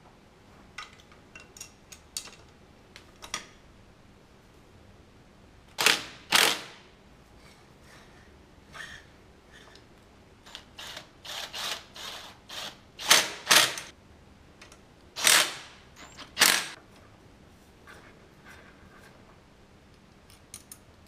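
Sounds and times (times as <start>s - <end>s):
cordless drill-driver bursts: 5.8s - 6.7s, 10.5s - 13.8s, 15.2s - 15.7s, 16.4s - 16.8s.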